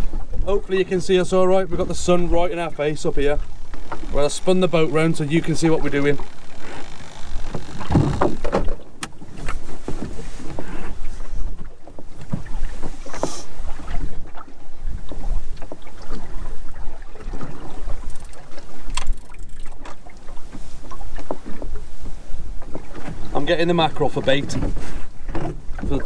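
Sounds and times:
water slapping against boat hull: 1.6s - 26.0s
knock against boat: 7.5s - 10.2s.

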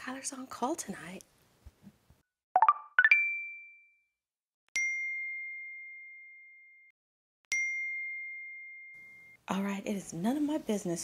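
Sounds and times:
phone notification ding: 2.6s - 3.9s.

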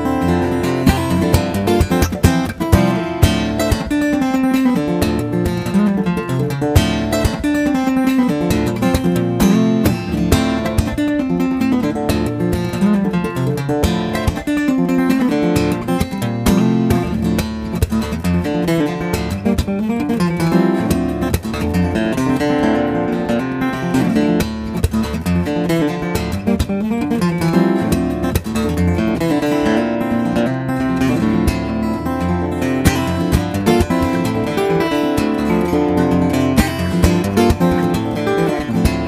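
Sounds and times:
acoustic guitar plucked and strummed: 0.0s - 39.0s.

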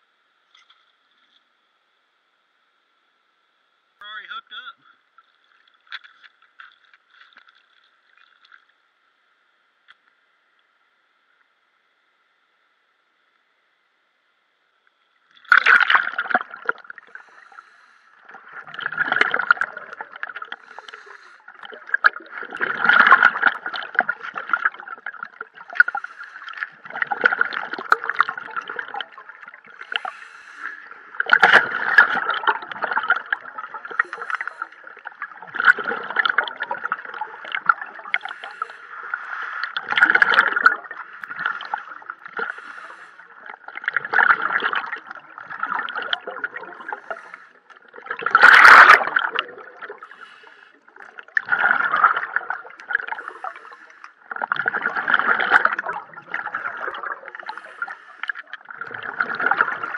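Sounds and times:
bubbles gurgling underwater: 15.4s - 17.2s, 18.2s - 30.2s, 30.8s - 59.9s.

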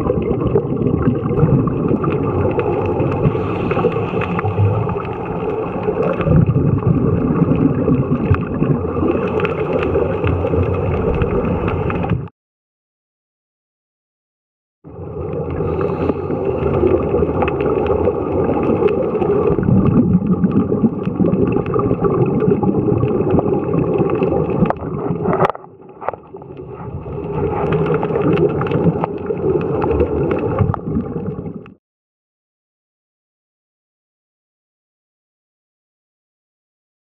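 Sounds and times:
underwater bubbles rumbling: 0.0s - 12.3s, 14.8s - 31.8s.

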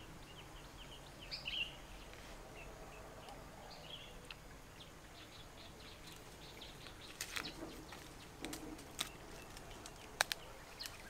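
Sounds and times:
birds chirping: 0.0s - 11.0s
scrapes and rustles on bark: 6.0s - 11.0s.

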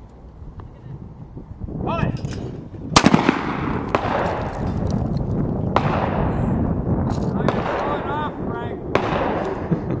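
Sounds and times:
sharp crack: 2.2s - 6.5s, 7.1s - 8.2s, 8.9s - 9.7s
pistol shot with echo: 3.0s - 4.6s, 5.7s - 6.4s, 7.5s - 8.1s, 8.9s - 9.7s.

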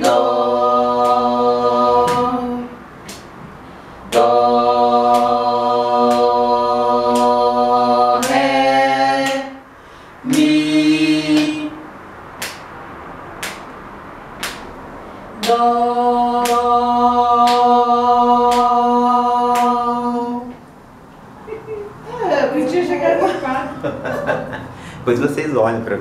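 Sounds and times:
group singing held notes: 0.0s - 12.6s, 14.4s - 20.8s.

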